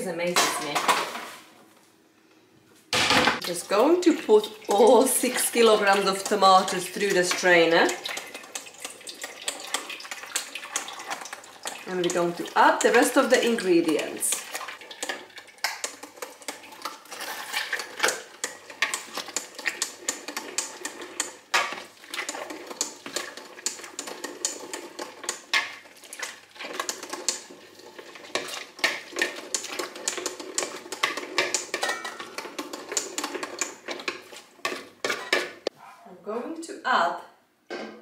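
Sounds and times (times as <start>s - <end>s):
strainer clicking and knocking: 4.8s - 35.6s.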